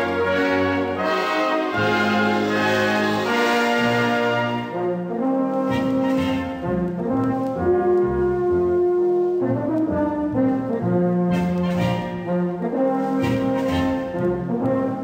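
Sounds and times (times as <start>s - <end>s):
brass instruments playing melody: 0.0s - 15.0s.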